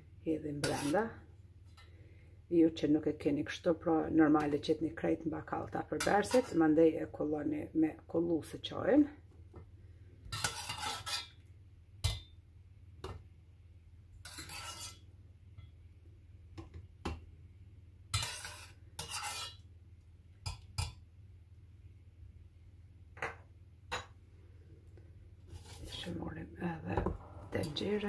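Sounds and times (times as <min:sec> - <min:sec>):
metal spoon scraping a pot: 0:00.5 - 0:01.9, 0:06.0 - 0:06.7, 0:10.3 - 0:11.4, 0:14.2 - 0:15.1, 0:18.1 - 0:19.7, 0:25.5 - 0:26.2, 0:27.0 - 0:28.0.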